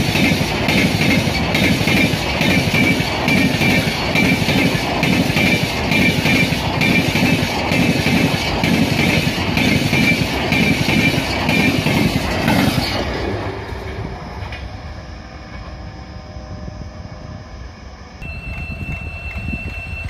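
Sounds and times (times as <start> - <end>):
train wheels clattering over rail joints: 0.0 - 14.7
train rumble: 0.0 - 20.0.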